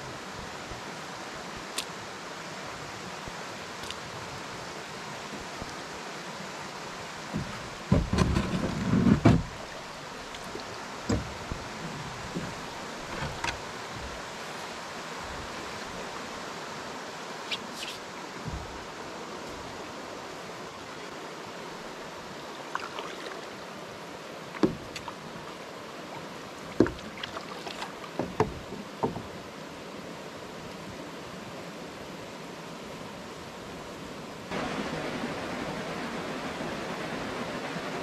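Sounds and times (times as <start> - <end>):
paddle bumping canoe hull: 7.3 - 9.6, 11.0 - 14.3, 18.4 - 18.9, 24.6 - 25.2, 26.7 - 29.4
waterfall rushing: 9.5 - 38.0
paddle dipping into water: 24.5 - 25.4, 26.2 - 29.4.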